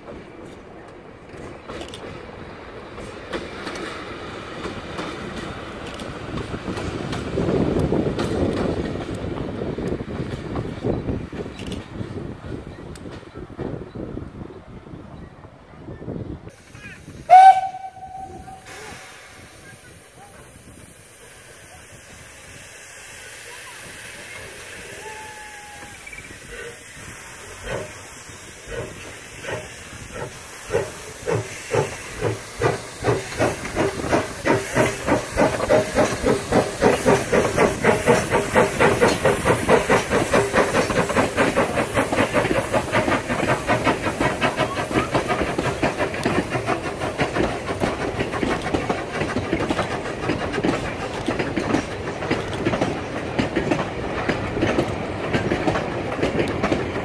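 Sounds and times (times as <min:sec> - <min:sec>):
steam hissing: 0:16.5 - 0:57.0
steam locomotive exhaust chuffs: 0:16.5 - 0:57.0
wheels clattering on rails: 0:27.5 - 0:57.0.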